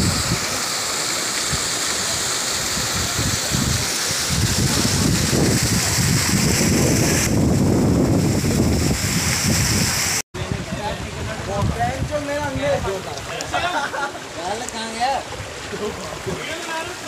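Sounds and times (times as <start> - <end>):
wind buffeting microphone: 0.0 - 0.6, 1.4 - 13.3
stream water rushing over stones: 0.0 - 17.0.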